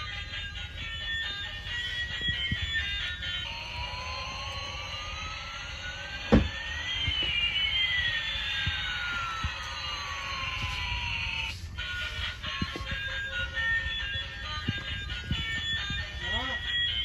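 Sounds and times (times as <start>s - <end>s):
toy rumbling along floor: 0.0s - 17.0s
falling whistle: 2.3s - 11.5s.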